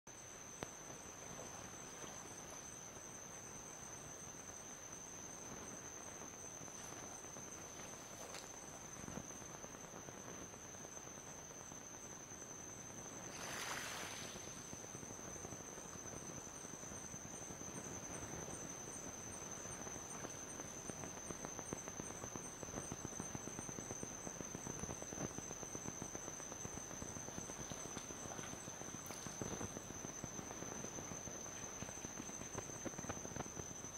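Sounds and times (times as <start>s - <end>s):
insects trilling: 0.1s - 33.9s.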